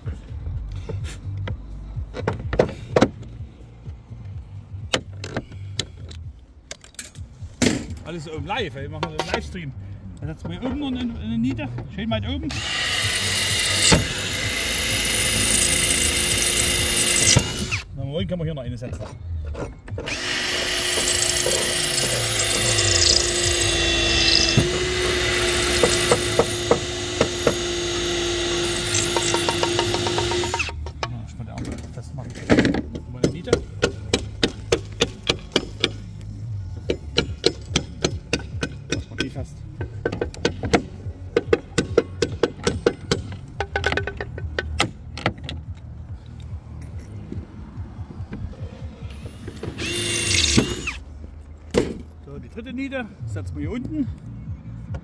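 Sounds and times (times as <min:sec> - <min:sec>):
power drill boring slate: 0:12.5 - 0:17.8, 0:20.1 - 0:30.7, 0:49.1 - 0:51.0.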